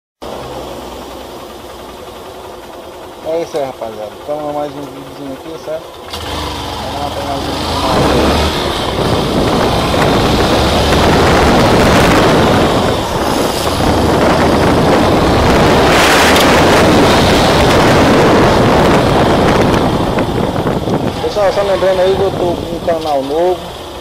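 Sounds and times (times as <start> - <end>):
motorcycle engine running: 0.2 - 24.0
wind buffeting microphone: 7.2 - 23.6.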